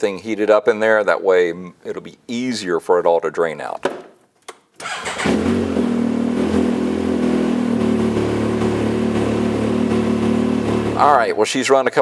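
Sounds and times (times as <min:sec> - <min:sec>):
engine starting and idling: 0:04.8 - 0:06.7.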